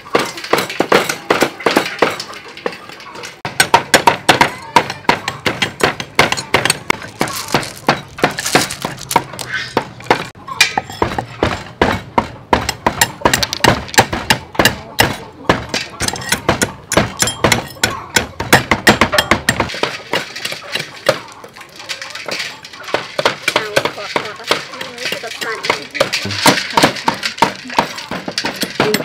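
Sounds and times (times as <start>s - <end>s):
cleavers chopping on wooden boards: 0.0s - 2.8s, 3.4s - 29.0s
shells cracking: 5.3s - 10.8s.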